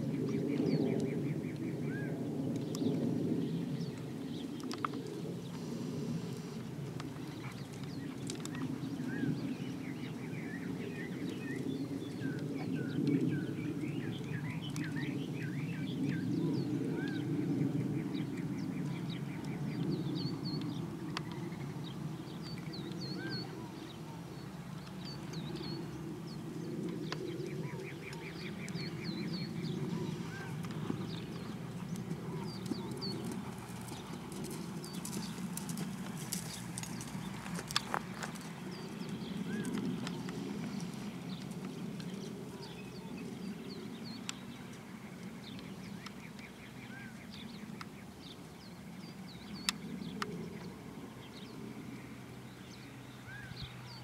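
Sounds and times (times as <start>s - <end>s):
small birds chirping: 0.0s - 54.0s
horse hoofbeats on dirt: 30.0s - 42.9s.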